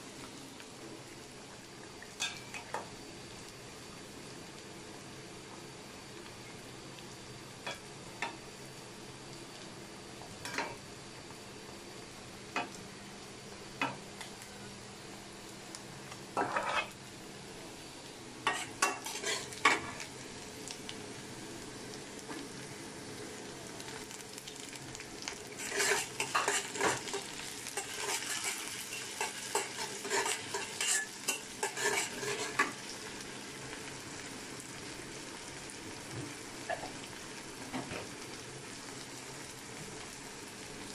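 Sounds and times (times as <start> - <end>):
onions frying in oil: 0.0 - 40.9
metal spatula scraping a pan: 16.4 - 17.0, 18.5 - 19.9, 25.6 - 32.7.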